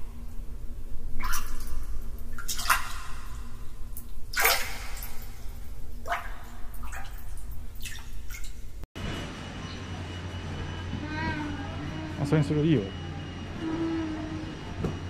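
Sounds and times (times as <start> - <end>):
water splashing and dripping: 0.0 - 8.8
steady low hum: 0.0 - 15.0.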